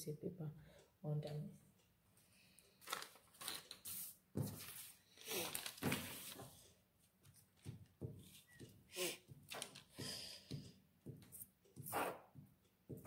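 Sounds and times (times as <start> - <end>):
paper rustling on a wooden table: 2.8 - 6.7.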